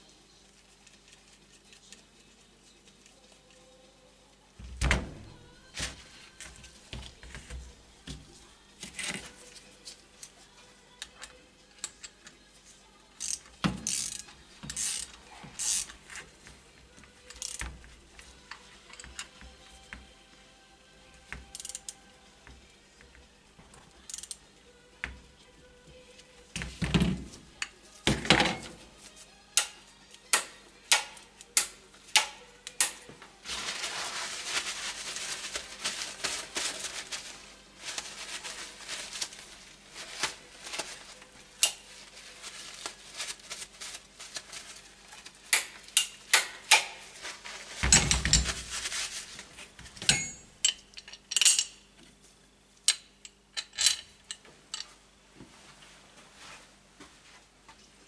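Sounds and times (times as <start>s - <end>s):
metal tools clinking on workbench: 50.1s - 51.8s.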